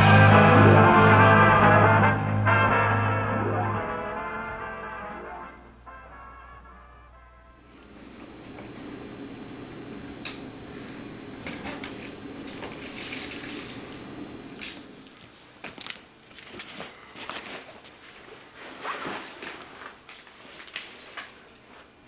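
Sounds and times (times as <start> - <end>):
low hum: 0.0 - 15.1
person moving about: 7.7 - 22.0.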